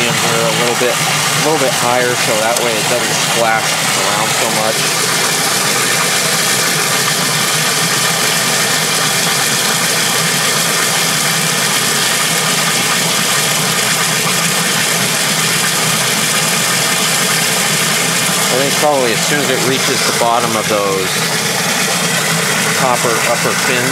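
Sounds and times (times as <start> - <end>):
water pouring into washer tub: 0.0 - 23.9.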